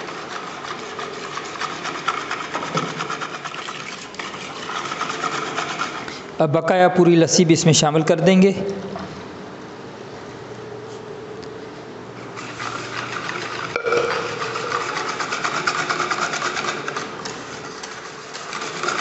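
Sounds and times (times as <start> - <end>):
whisk scraping against bowl: 0.0 - 6.2, 12.3 - 19.0
knock on bowl: 13.8 - 14.8.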